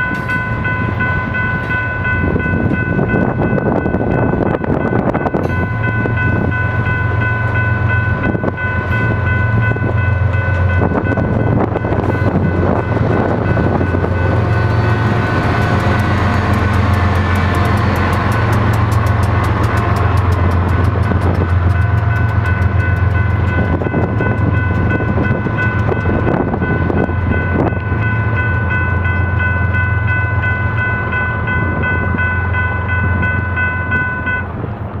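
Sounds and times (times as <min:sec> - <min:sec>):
crossing bell ringing: 0:00.0 - 0:34.9
diesel locomotive drone: 0:00.0 - 0:35.0
freight train engine rumble: 0:00.0 - 0:35.0
wheels clicking over rail joints: 0:10.5 - 0:29.9.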